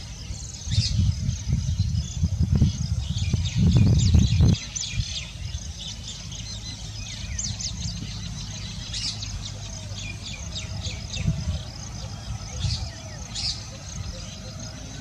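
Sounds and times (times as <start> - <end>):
low rumbling hum: 0.0 - 15.0
small birds chirping: 0.0 - 15.0.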